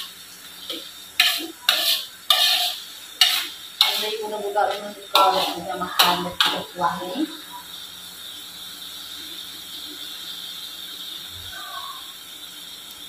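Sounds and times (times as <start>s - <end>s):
metal ladle scraping a wok: 0.0s - 6.8s
sauce cooking with a hiss: 0.0s - 13.0s.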